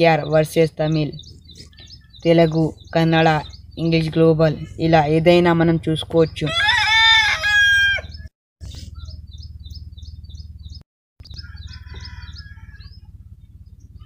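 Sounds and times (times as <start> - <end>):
bird chirping: 0.0 - 6.8, 7.8 - 14.0
person speaking: 2.2 - 6.6
steady low hum: 8.6 - 14.0.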